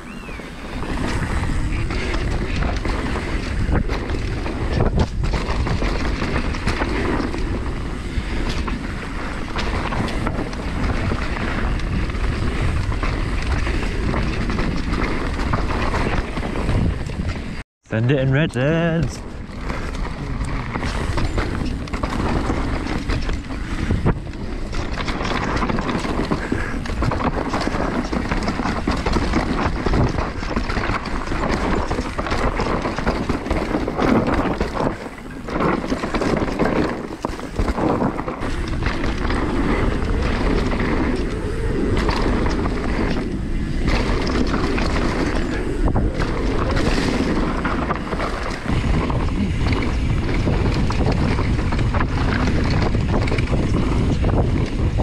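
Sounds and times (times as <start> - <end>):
bike knocking and rattling: 0.0 - 17.6, 19.1 - 55.0
tyres rolling on dirt: 0.0 - 55.0
wind rushing over microphone: 0.0 - 55.0.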